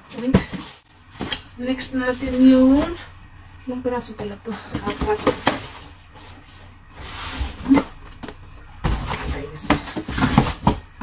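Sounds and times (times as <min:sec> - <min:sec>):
cardboard boxes knocking: 0:04.2 - 0:05.8, 0:07.7 - 0:11.0
cardboard rustling slide: 0:04.8 - 0:07.9.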